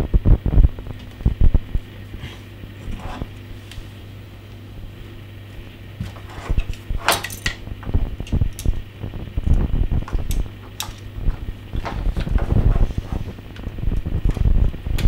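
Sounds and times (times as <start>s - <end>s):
low steady hum: 0.0s - 15.0s
cable knocks and clicks: 10.0s - 12.8s.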